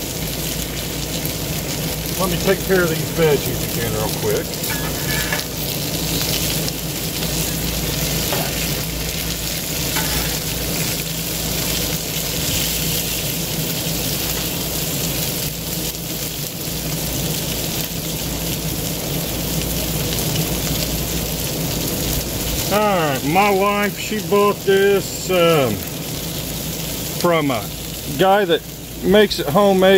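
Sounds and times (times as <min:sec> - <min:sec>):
food sizzling on a griddle: 0:00.0 - 0:29.9
low hum: 0:00.3 - 0:15.4
metal spatula scraping: 0:04.6 - 0:05.7, 0:09.8 - 0:11.0.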